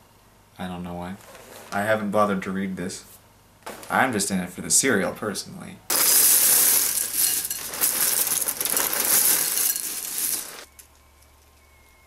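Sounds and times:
cereal pouring into bowl: 5.9s - 10.7s.

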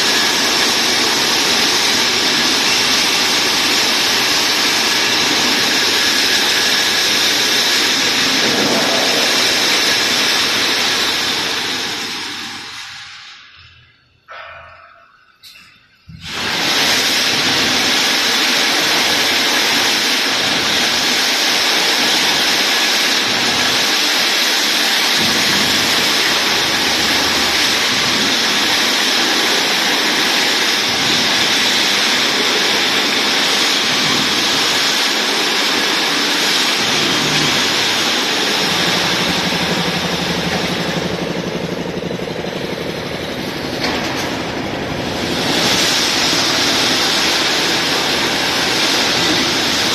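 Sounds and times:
machinery din: 0.0s - 12.8s, 36.4s - 49.9s.

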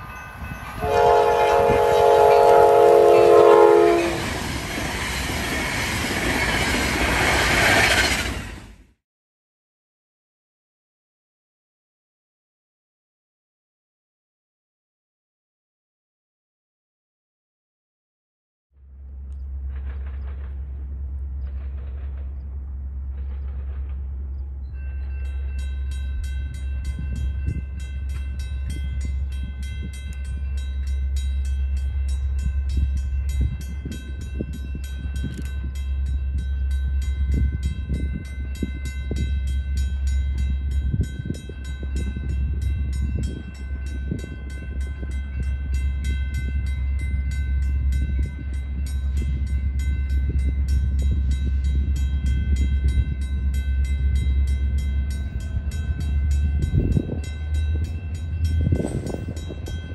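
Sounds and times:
level-crossing bell ringing: 0.0s - 1.2s, 24.6s - 59.9s
freight train rumble: 0.0s - 8.9s, 18.8s - 59.9s.

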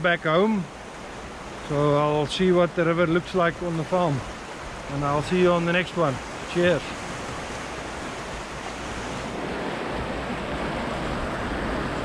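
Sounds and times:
river water rushing: 0.0s - 12.0s
wind buffeting microphone: 6.2s - 12.0s.

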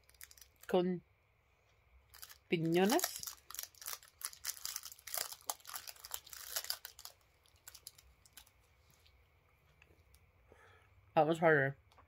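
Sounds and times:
candy wrapper crinkling: 0.0s - 0.8s, 2.1s - 9.2s.

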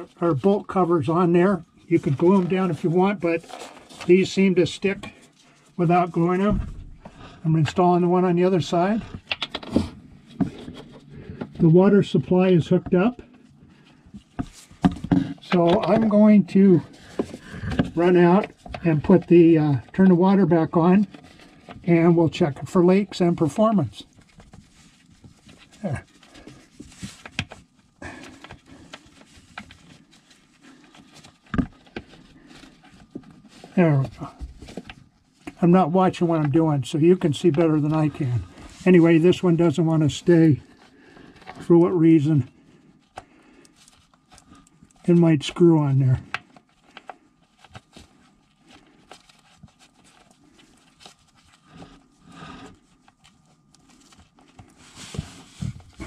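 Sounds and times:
cloth rustling: 22.7s - 56.0s.

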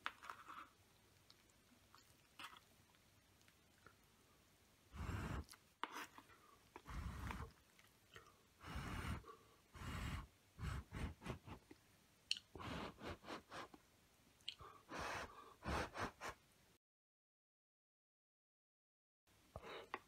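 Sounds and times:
puffs of breath blowing: 4.9s - 5.5s, 8.6s - 11.6s, 14.6s - 16.4s.

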